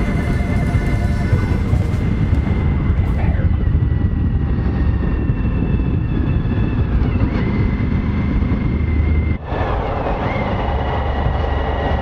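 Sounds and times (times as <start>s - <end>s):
motorcycle engine at road speed: 0.0s - 12.0s
wind rushing over microphone: 0.0s - 12.0s.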